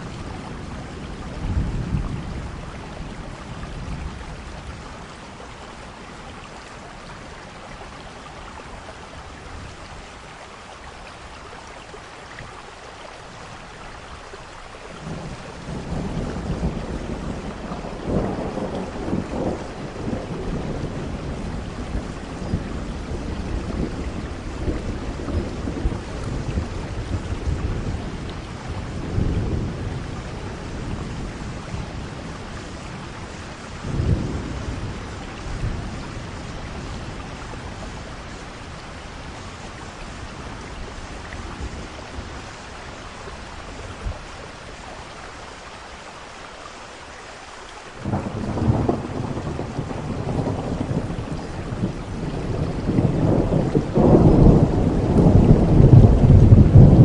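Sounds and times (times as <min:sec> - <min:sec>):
thunder rumbling: 0:00.0 - 0:06.1, 0:15.0 - 0:44.7, 0:48.0 - 0:57.0
heavy rain: 0:00.0 - 0:57.0.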